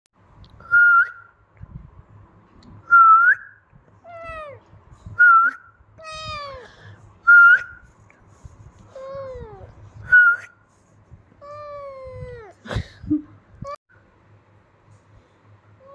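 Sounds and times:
kitten meowing: 6.0 - 6.6.

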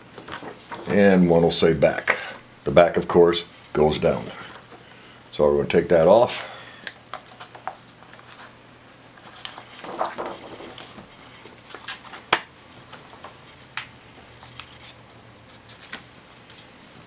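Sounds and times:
plastic film crinkling: 9.3 - 13.3.

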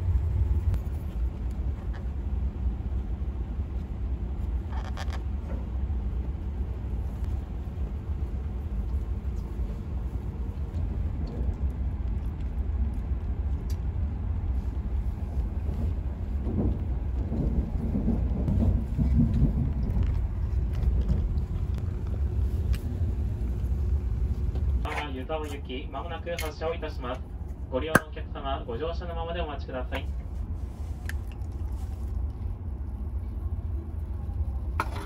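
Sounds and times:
low rumble inside train cabin: 0.0 - 35.0.

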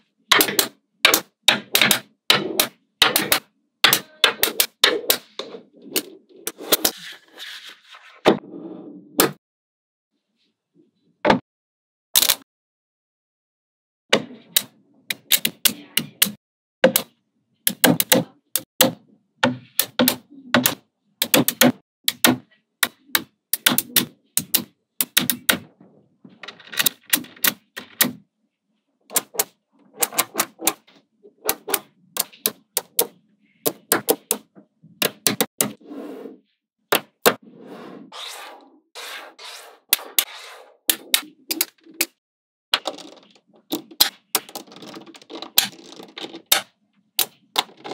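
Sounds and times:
magnetic balls clicking: 29.1 - 34.4, 42.8 - 47.9.

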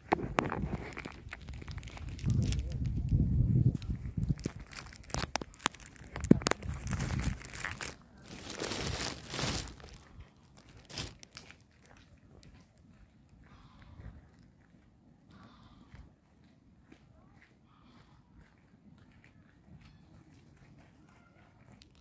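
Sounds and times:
plastic crinkling and rustling: 0.0 - 12.5
sharp clicks and crackles: 0.0 - 12.7.

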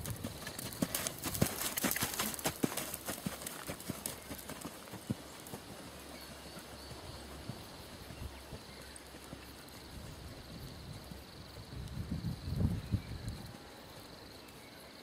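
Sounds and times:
horse hoofbeats on sand: 0.0 - 10.2.

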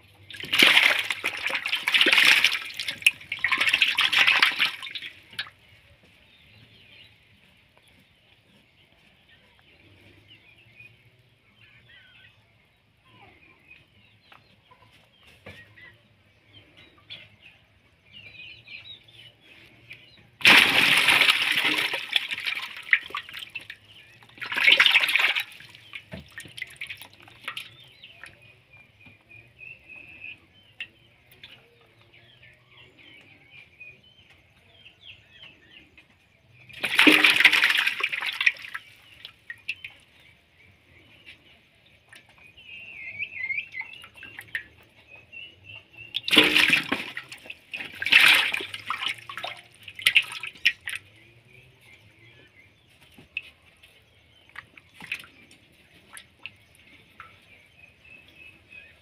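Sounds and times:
fish splashing in water: 0.2 - 5.6, 20.4 - 28.4, 36.7 - 40.4, 45.6 - 51.2.

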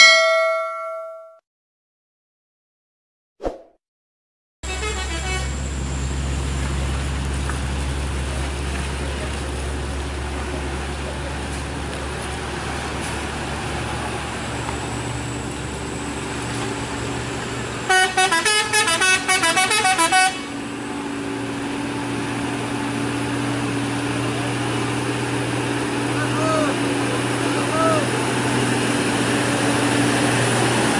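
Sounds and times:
vehicle horn toots: 4.6 - 5.6, 17.9 - 20.6
truck diesel engine under load: 4.7 - 30.9.

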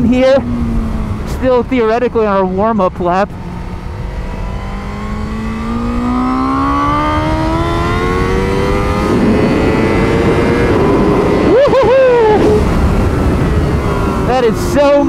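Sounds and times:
motorcycle engine accelerating: 0.0 - 15.0
wind rush on microphone: 6.6 - 15.0.

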